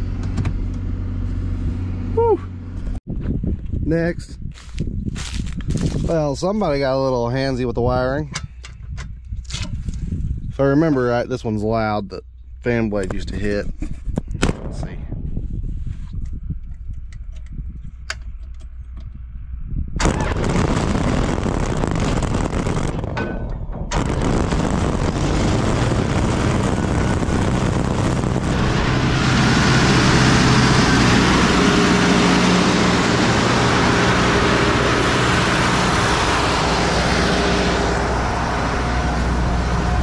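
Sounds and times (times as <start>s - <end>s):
pump engine droning: 23.9s - 40.0s.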